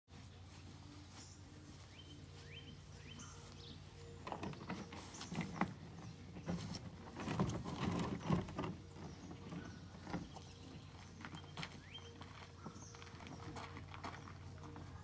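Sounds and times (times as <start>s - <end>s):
footsteps on gravel: 0.1s - 15.0s
canoe hull knocking and rubbing: 4.2s - 10.4s.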